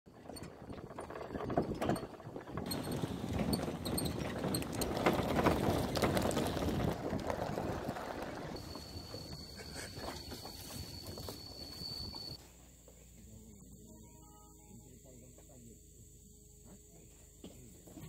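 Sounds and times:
motorbike on gravel track: 0:00.1 - 0:12.9
tyres crunching on stones: 0:02.6 - 0:12.4.

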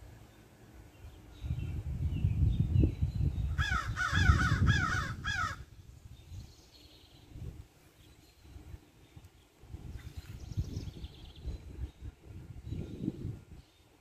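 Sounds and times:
crow cawing: 0:03.6 - 0:05.6.

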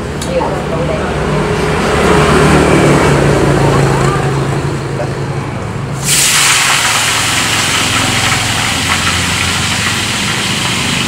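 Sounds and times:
loud steady hiss: 0:06.0 - 0:11.0
engine humming: 0:06.7 - 0:11.0.

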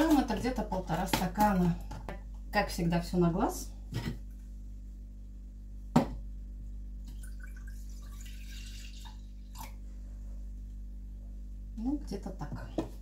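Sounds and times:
milk pouring into saucepan: 0:07.1 - 0:09.8.

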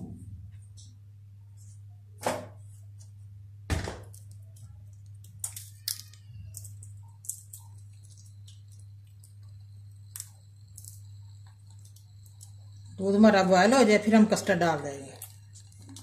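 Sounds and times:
steady low hum: 0:00.0 - 0:16.0
cardamom pods cracking: 0:04.0 - 0:13.0, 0:14.8 - 0:16.0.

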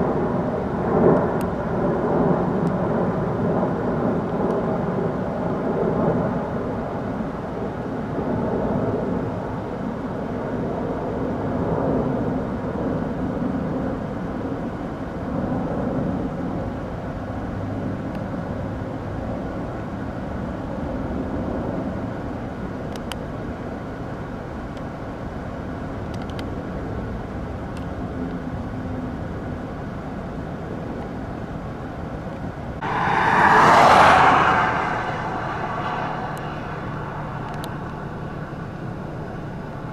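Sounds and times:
brief rushing sound: 0:32.8 - 0:39.2
distant helicopter rumble: 0:32.8 - 0:39.9.

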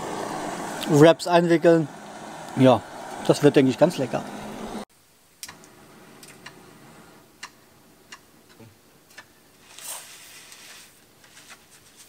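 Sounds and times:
scraping rustle: 0:09.6 - 0:12.0.

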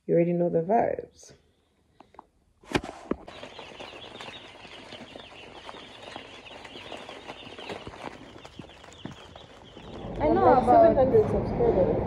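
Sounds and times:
baby chicks peeping: 0:03.2 - 0:11.0.

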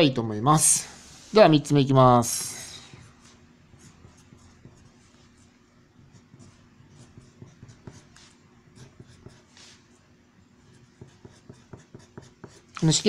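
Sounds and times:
pencil scratching on paper: 0:02.8 - 0:10.0, 0:10.6 - 0:12.8.

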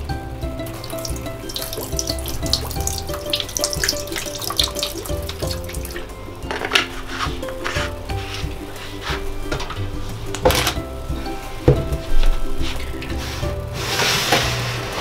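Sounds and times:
gentle background music: 0:00.0 - 0:15.0
liquid pouring into water: 0:00.6 - 0:06.1.

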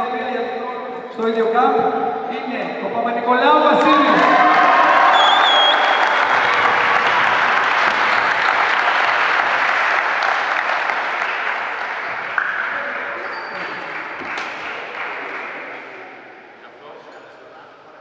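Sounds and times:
crowd applauding: 0:03.8 - 0:16.2.

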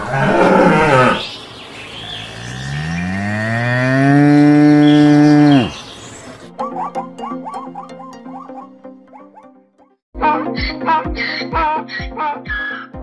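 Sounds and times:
cow mooing: 0:00.0 - 0:01.3, 0:02.0 - 0:05.8.

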